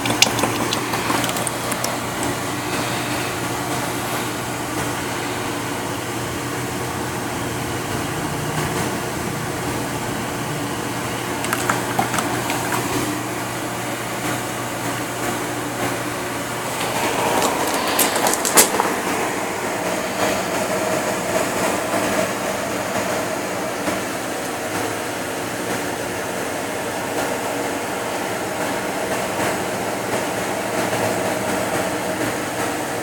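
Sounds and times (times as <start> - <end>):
centrifuge whirring and whining: 11.2 - 24.6.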